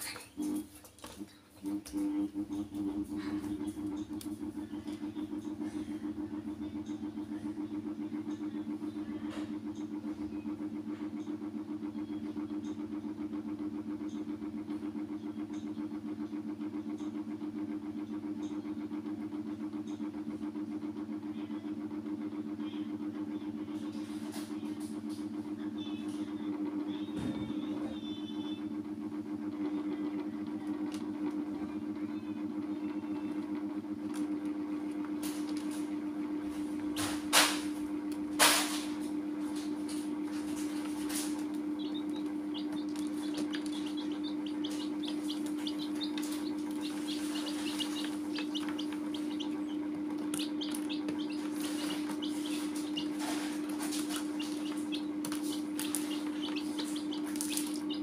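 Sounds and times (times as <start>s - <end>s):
baby chicks peeping: 0.0s - 0.8s, 1.8s - 20.8s, 39.4s - 58.0s
steady low hum: 0.0s - 58.0s.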